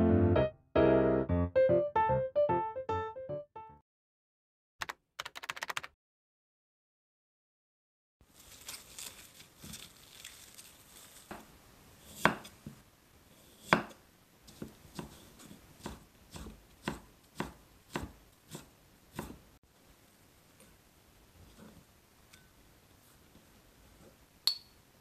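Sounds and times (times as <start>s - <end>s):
knife chopping on wooden board: 12.2s - 12.8s, 13.6s - 19.4s.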